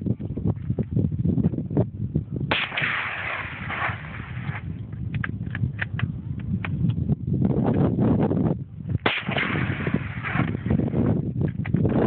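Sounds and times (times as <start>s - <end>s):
rifle shot: 2.5s - 4.7s, 9.0s - 11.0s.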